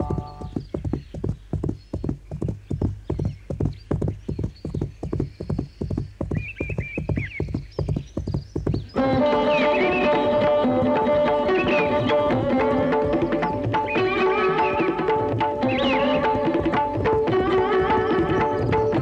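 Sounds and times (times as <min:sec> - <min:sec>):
horse hoofbeats galloping: 0:00.0 - 0:19.0
tabla and sitar music: 0:08.8 - 0:19.0
horse whinnying: 0:09.0 - 0:18.9.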